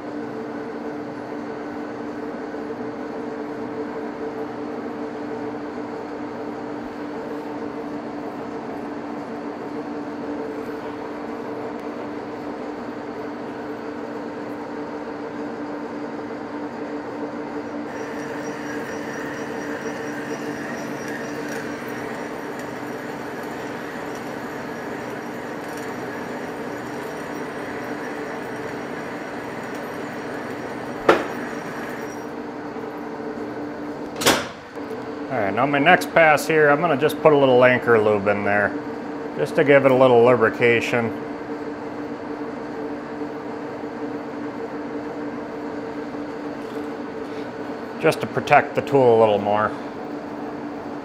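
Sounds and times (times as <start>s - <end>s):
lathe headstock gearing whine: 17.6s - 33.5s.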